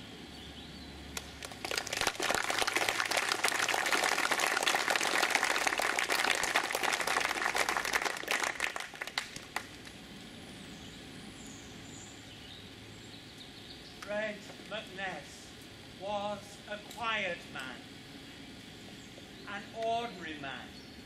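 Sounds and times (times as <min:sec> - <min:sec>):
crowd applauding: 0:01.2 - 0:10.0.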